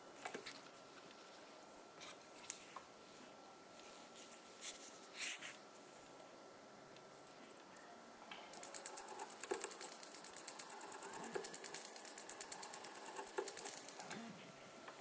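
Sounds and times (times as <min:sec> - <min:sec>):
dental handpiece rapid clicking: 0:08.5 - 0:14.1.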